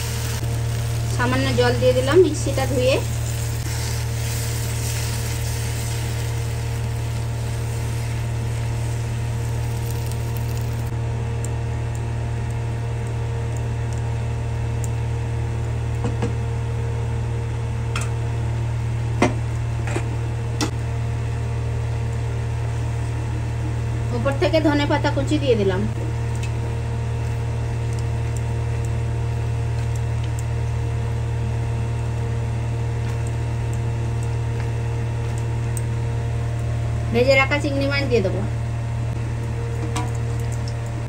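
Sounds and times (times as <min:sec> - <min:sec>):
curry sizzling in a frying pan: 0:00.0 - 0:10.9
steady low hum: 0:00.0 - 0:41.0.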